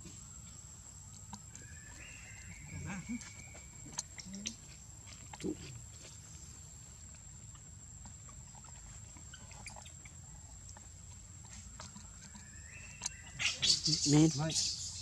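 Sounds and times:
small ticks: 0:01.0 - 0:06.2, 0:07.0 - 0:14.3
monkey call: 0:01.6 - 0:04.7, 0:11.8 - 0:15.0.

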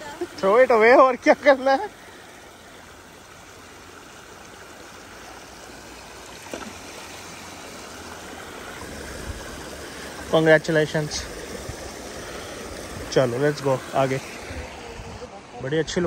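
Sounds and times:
stream flowing over rocks: 0:00.0 - 0:16.0.

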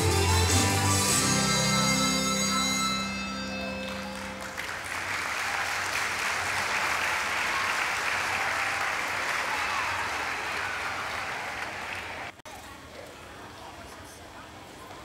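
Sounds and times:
music held final notes: 0:00.0 - 0:04.8
audience applause: 0:03.8 - 0:12.4.

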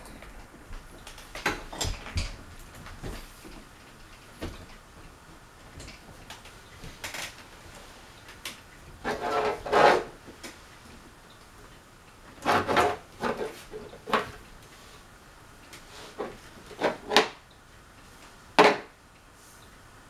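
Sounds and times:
scraping rustle: 0:09.0 - 0:10.8, 0:12.3 - 0:15.0.

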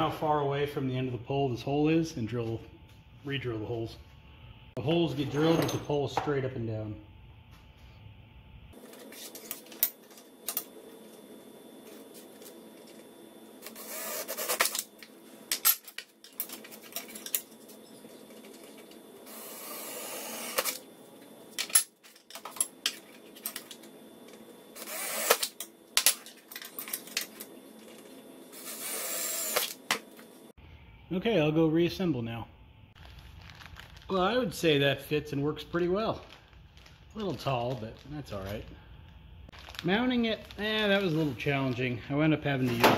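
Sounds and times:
cordless drill drilling metal: 0:13.6 - 0:14.8, 0:19.3 - 0:20.8, 0:24.8 - 0:25.6, 0:28.6 - 0:29.8.

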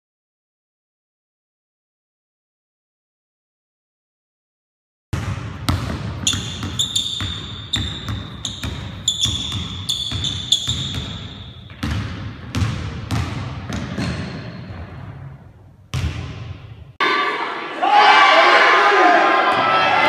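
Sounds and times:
basketball bouncing on wood floor: 0:05.2 - 0:15.3, 0:15.9 - 0:16.8
sneaker squeaks: 0:06.2 - 0:12.0, 0:13.7 - 0:15.0.

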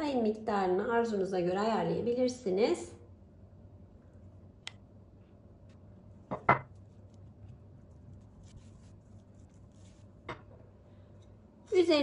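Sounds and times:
ceramic bowl and spoon knocks: 0:06.3 - 0:06.7
soft scraping of spreading: 0:06.8 - 0:10.3.

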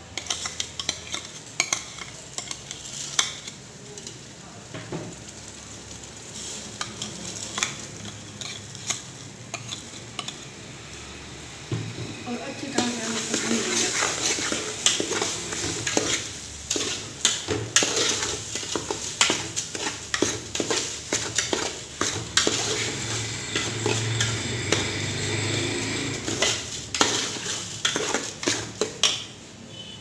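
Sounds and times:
metal spoon scraping pot: 0:00.0 - 0:03.6, 0:06.8 - 0:10.5, 0:12.6 - 0:29.2
hot fat sizzling: 0:00.0 - 0:30.0.

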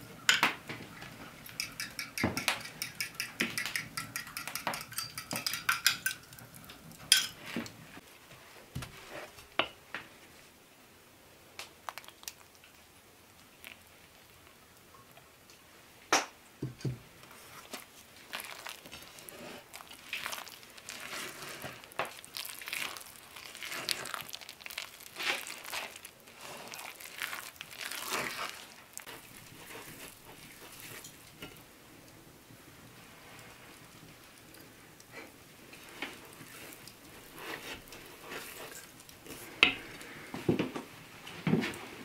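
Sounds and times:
wooden spoon scraping batter: 0:01.0 - 0:08.0, 0:17.2 - 0:31.6, 0:35.2 - 0:40.1.

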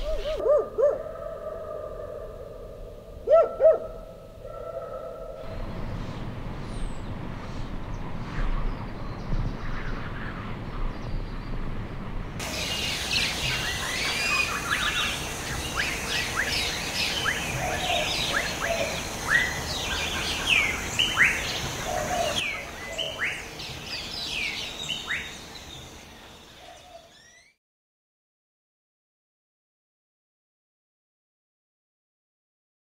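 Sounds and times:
birds chirping and singing: 0:00.0 - 0:07.2, 0:12.4 - 0:27.6
distant traffic rumble: 0:00.0 - 0:27.0
steady hiss: 0:12.4 - 0:26.4.

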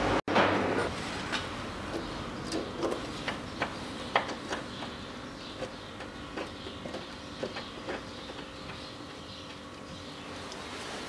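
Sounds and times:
nut and bolt clicking: 0:01.9 - 0:09.7.

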